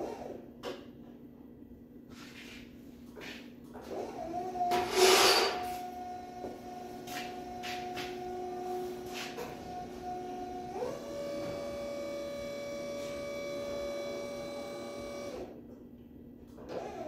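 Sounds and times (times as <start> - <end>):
electric lift motor whining: 3.8 - 15.6, 16.6 - 17.0.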